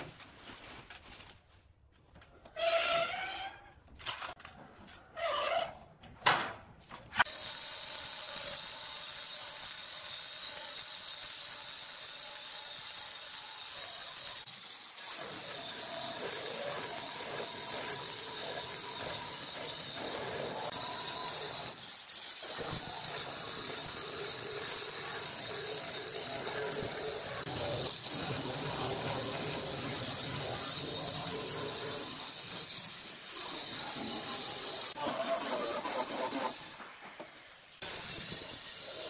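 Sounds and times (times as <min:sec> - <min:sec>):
stone cutter sawing stone: 0:07.2 - 0:36.8.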